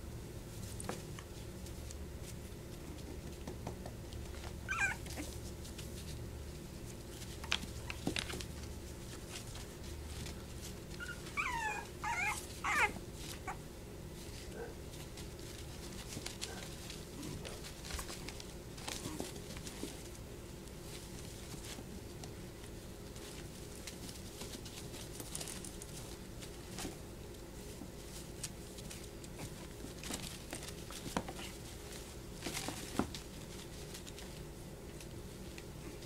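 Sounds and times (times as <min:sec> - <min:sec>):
paws scuffling in plastic tub: 0:04.2 - 0:36.0
puppies whimpering and yipping: 0:04.6 - 0:05.3, 0:11.0 - 0:13.6.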